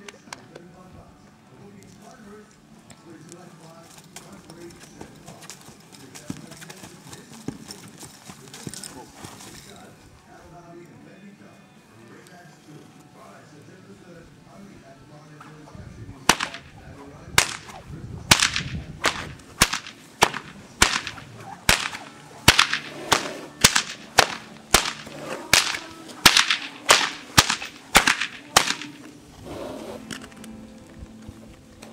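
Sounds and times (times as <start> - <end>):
whip cracking: 16.3 - 16.8, 17.4 - 29.1.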